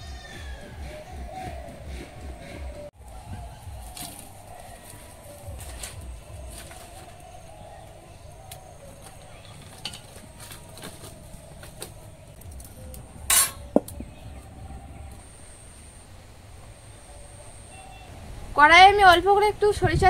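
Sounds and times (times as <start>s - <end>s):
metallic clink: 13.3s - 13.7s.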